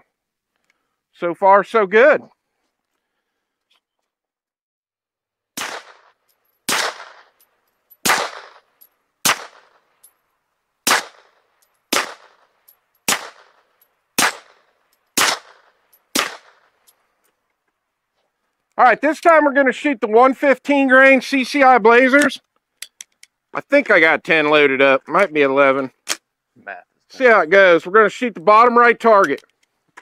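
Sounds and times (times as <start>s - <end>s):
suppressed pistol shots: 5.6s - 7.4s, 8.0s - 9.8s, 10.8s - 16.8s.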